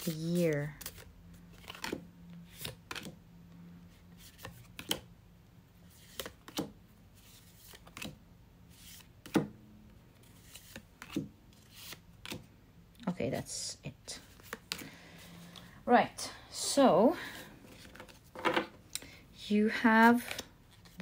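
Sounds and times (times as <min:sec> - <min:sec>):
cards slapping on wood: 0:06.1 - 0:06.8, 0:09.2 - 0:09.6.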